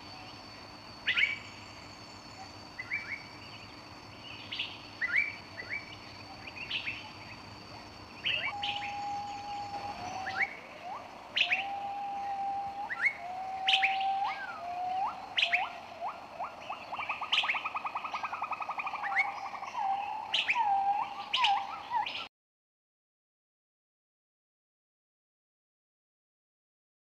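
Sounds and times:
bird song: 0.0s - 22.3s.

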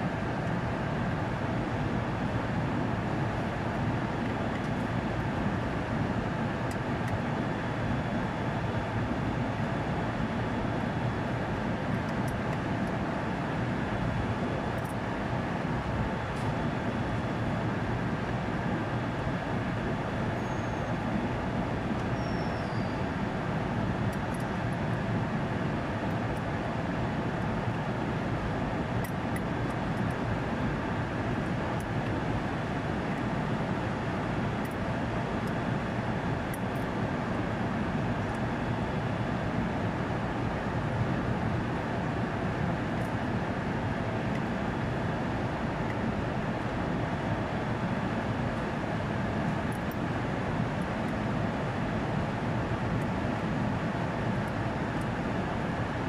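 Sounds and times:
machinery rumble and hum: 0.0s - 56.0s.

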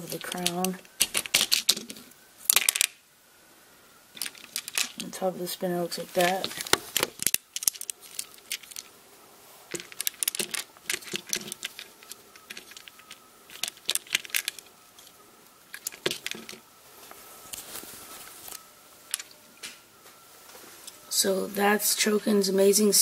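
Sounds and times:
plastic toy bricks clicking and rattling: 0.0s - 3.0s, 4.2s - 5.2s, 6.1s - 8.9s, 9.7s - 15.1s, 15.7s - 16.6s.

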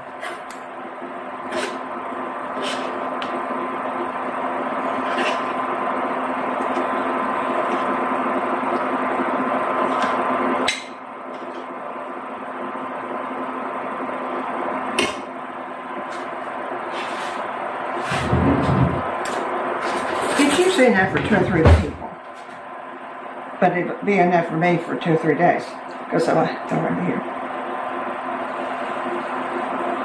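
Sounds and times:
faint hum: 0.0s - 30.0s.

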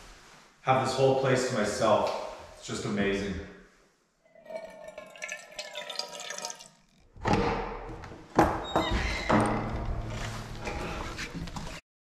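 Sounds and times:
water pouring into metal pot: 4.3s - 7.1s.

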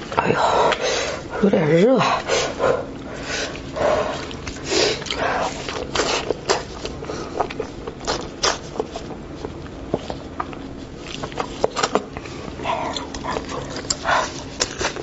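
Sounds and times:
wet chewing and sucking: 2.8s - 15.0s
lip smacks: 12.8s - 15.0s.

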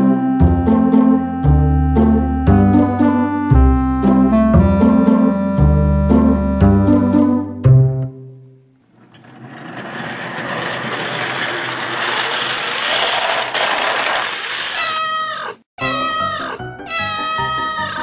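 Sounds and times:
background music: 0.0s - 8.7s, 15.8s - 18.0s
cat meowing: 14.8s - 18.0s.

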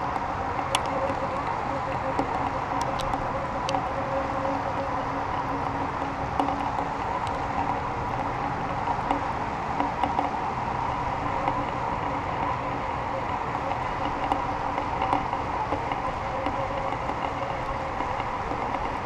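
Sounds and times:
rushing wind noise: 0.0s - 19.0s
light ticks and knocks: 5.3s - 10.4s, 11.0s - 19.0s.

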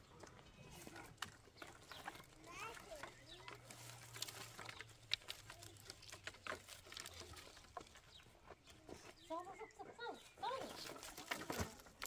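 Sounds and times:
clicks and knocks of dry branches: 0.0s - 9.3s, 10.3s - 12.0s.

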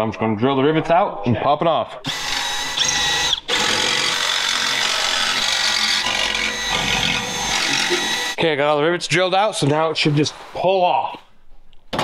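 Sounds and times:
cordless drill drilling rivets: 2.1s - 8.4s.

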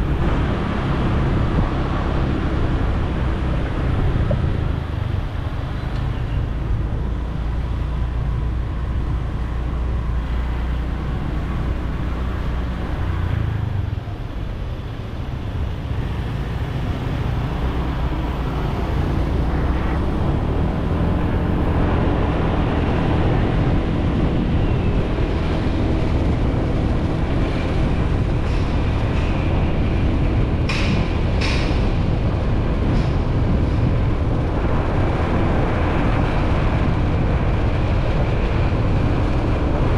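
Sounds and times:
wind and road noise: 0.0s - 39.9s.

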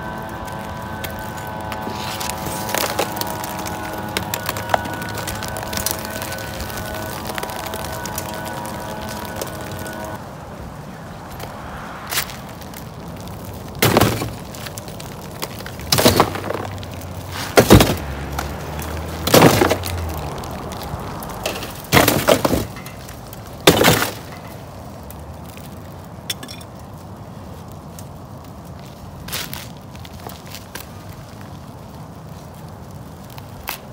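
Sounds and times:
brick pieces clattering: 13.8s - 20.2s, 21.4s - 24.5s.

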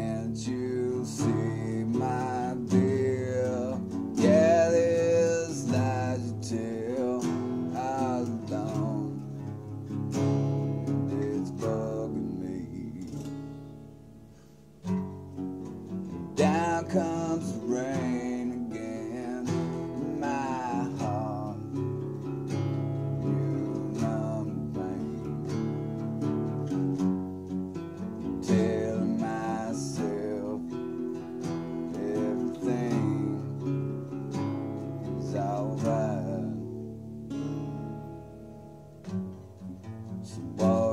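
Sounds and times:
person singing: 0.0s - 9.5s, 10.8s - 13.4s, 16.4s - 26.0s, 28.4s - 37.0s, 40.2s - 40.9s
acoustic guitar strumming: 0.0s - 40.9s.

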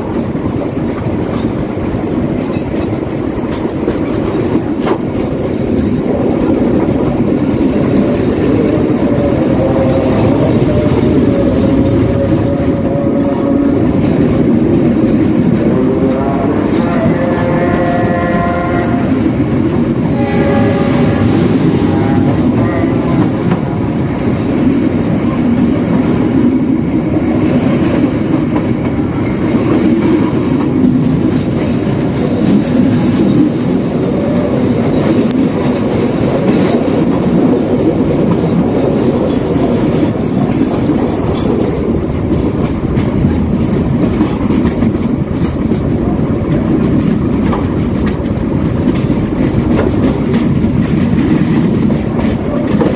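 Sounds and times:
train wheels rumbling on rails: 0.0s - 52.9s
train horn: 7.0s - 25.4s.

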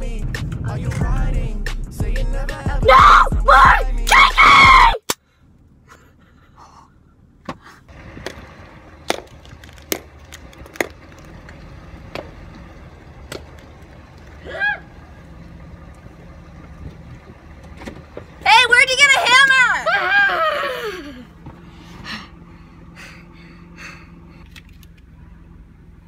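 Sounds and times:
object cracking against asphalt: 9.0s - 11.6s.

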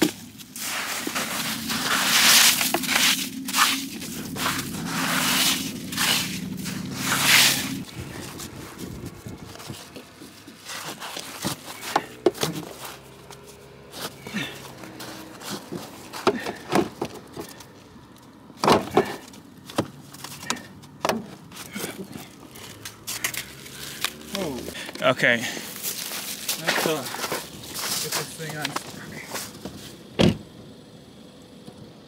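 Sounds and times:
snow crunches and knocks: 0.0s - 17.6s, 18.6s - 30.0s
hands scraping packed snow: 0.2s - 16.6s, 22.6s - 30.0s.

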